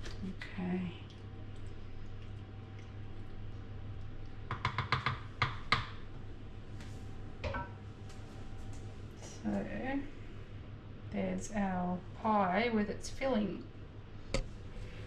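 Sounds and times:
steady low hum: 0:00.0 - 0:15.0
wooden spoon tapping metal pan: 0:04.5 - 0:05.9.

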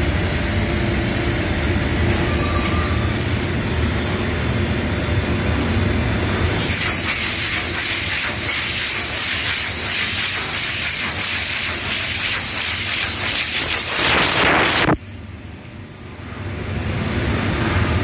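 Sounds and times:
powder spray hissing: 0:06.6 - 0:15.0.

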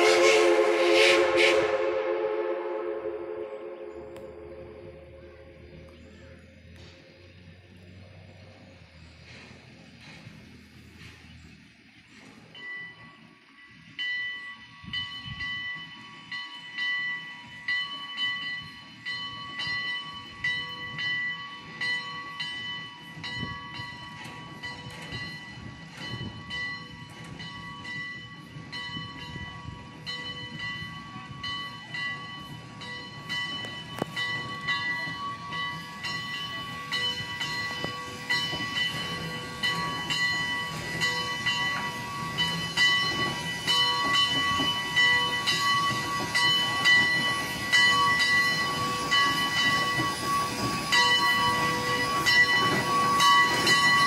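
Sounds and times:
low rumble of train engine: 0:00.0 - 0:54.0
locomotive bell ringing: 0:12.4 - 0:54.0.

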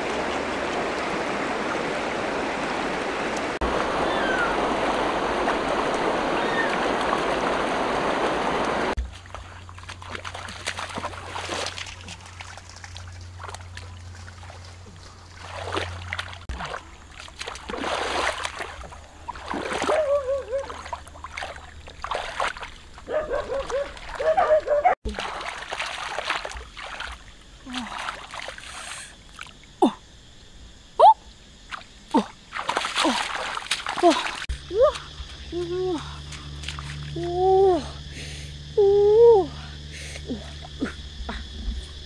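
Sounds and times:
river running over rocks: 0:00.0 - 0:09.0
hands splashing in water: 0:08.6 - 0:24.4, 0:25.1 - 0:28.7, 0:31.7 - 0:35.2.

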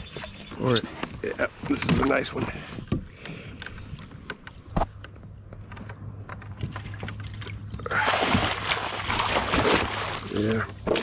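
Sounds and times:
water splashing around kayak: 0:06.6 - 0:11.0.

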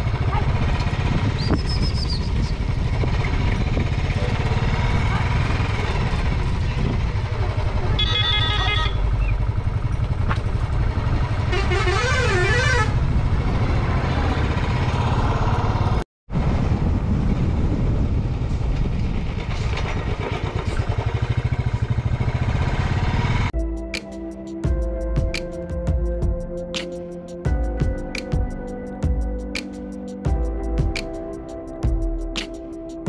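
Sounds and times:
motorcycle engine rumble: 0:00.0 - 0:23.5
wind: 0:00.0 - 0:33.0
horn honking: 0:07.8 - 0:09.2, 0:11.3 - 0:13.1.

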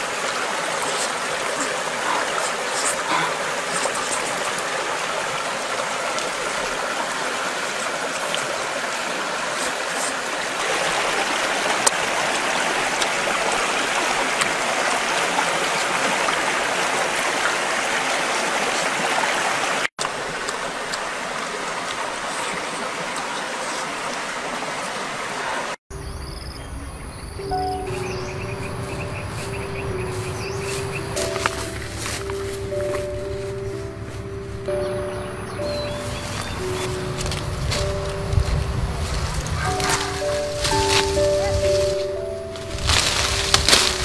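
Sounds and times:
running water rushing: 0:00.0 - 0:25.8, 0:27.4 - 0:44.0.

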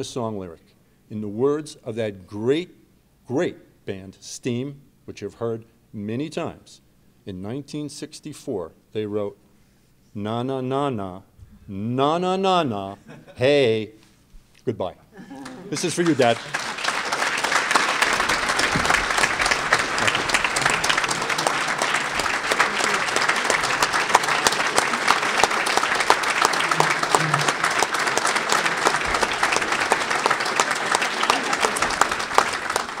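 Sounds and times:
audience applauding: 0:15.3 - 0:33.0.

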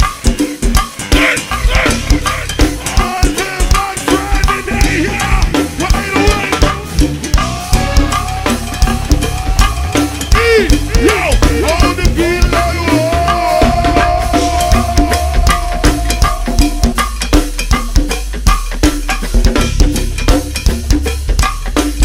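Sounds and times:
drum kit and percussion beat: 0:00.0 - 0:22.0
pitched melodic line: 0:01.6 - 0:17.4.

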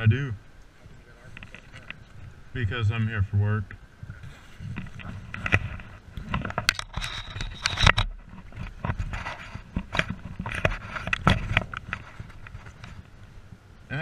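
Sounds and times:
jacket fabric rustling and scraping: 0:04.1 - 0:13.2.

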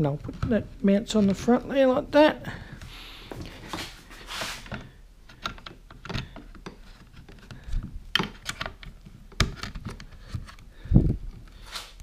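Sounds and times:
short rustle: 0:03.5 - 0:04.7
plastic clicks and knocks: 0:04.7 - 0:10.6.

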